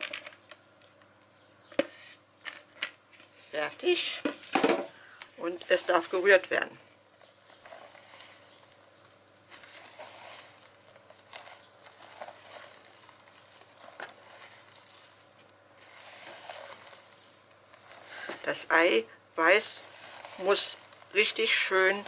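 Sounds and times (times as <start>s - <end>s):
spatula squelching batter: 4.9s - 22.0s.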